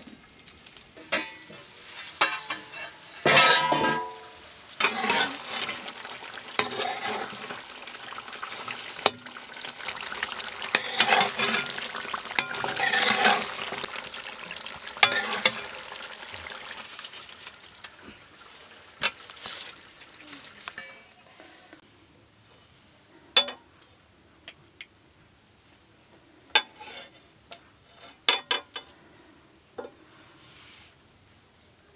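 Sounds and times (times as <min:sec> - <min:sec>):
meat sizzling in gravy: 0:00.0 - 0:20.8
spatula scraping pan: 0:01.0 - 0:14.3, 0:14.9 - 0:16.0, 0:26.6 - 0:27.2
pan lid clatter: 0:02.2 - 0:05.8, 0:06.6 - 0:07.6, 0:10.7 - 0:11.8, 0:12.4 - 0:13.8, 0:15.0 - 0:15.7.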